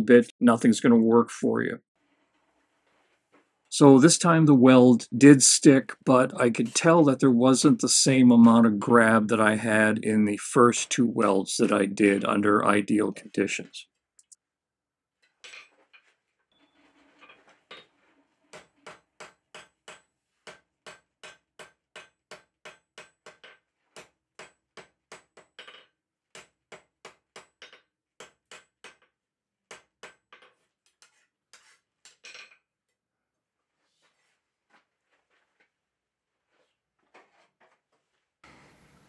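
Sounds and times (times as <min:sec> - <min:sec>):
soft knocks and scraping: 0:02.0 - 0:03.7, 0:15.2 - 0:19.1, 0:33.8 - 0:35.8, 0:36.4 - 0:39.0.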